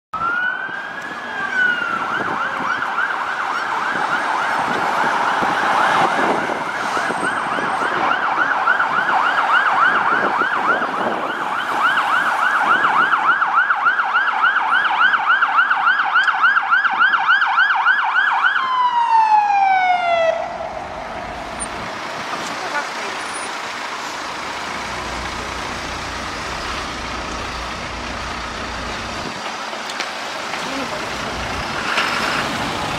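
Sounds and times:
electronic siren wailing and yelping: 0.2 - 21.8.

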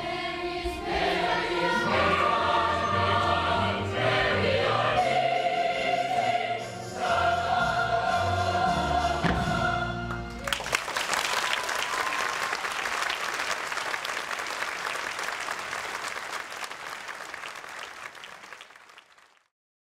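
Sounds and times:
audience applause: 10.1 - 19.5.

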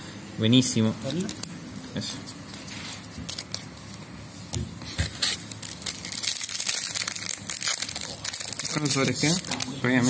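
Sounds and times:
crinkling of card packs: 1.0 - 4.0, 5.1 - 10.0.

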